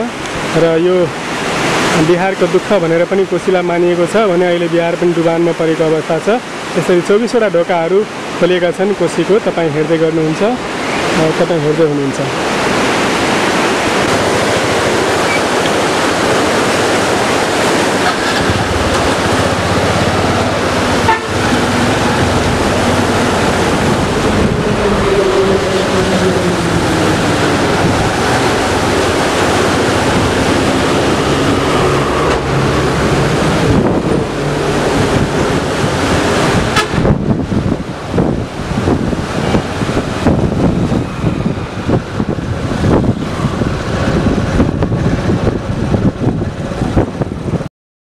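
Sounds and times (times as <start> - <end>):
wind rushing on microphone: 8.1 - 47.7
traffic engine tones: 12.3 - 47.5.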